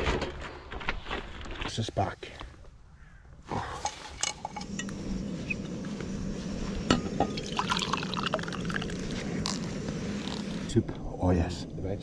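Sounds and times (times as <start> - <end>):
thick liquid pouring into mug: 7.4 - 9.1.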